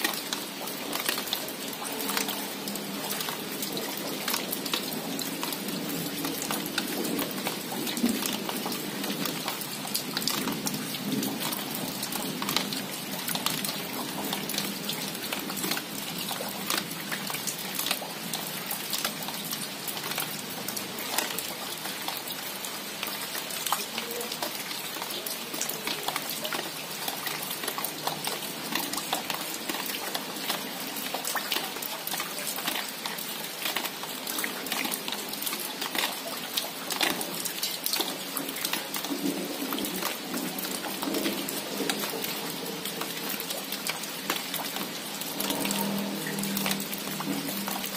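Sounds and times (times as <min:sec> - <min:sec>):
raindrops ticking close by: 0:00.0 - 0:47.9
steady rain hiss: 0:00.0 - 0:47.9.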